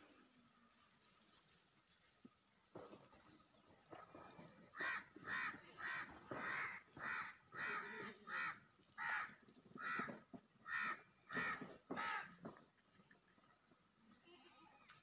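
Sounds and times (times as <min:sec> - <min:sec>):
crow cawing: 0:04.8 - 0:12.4.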